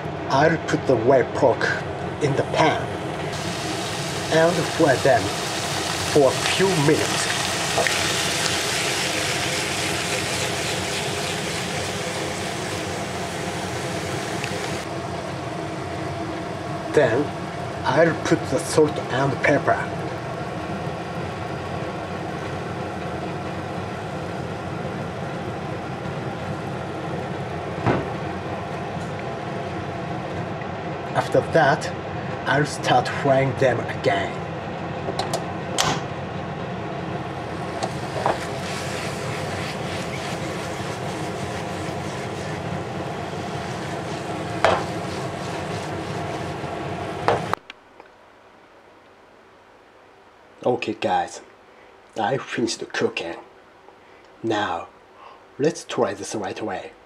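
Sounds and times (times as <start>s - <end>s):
meat sizzling in a frying pan: 3.3s - 14.8s, 37.7s - 47.3s.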